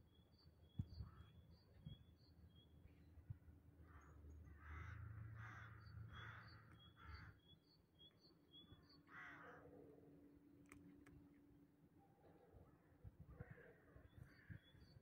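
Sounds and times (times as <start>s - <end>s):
faint crow cawing: 3.8s - 7.4s, 9.0s - 9.8s, 13.3s - 14.7s.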